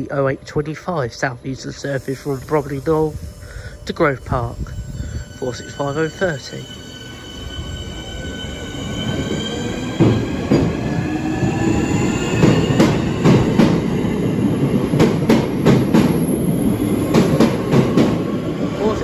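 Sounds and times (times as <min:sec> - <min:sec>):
train wheels clicking over joints: 0:09.7 - 0:18.4.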